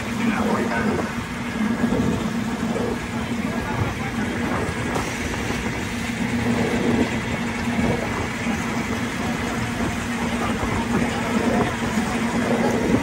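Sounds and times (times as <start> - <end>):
boat engine humming: 0.0 - 13.0
water rushing: 0.0 - 13.0.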